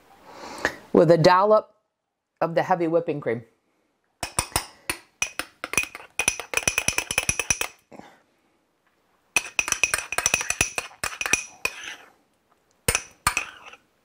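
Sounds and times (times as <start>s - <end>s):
spoon clinking against ceramic ramekin: 4.2s - 7.8s, 9.4s - 12.0s, 12.9s - 13.8s.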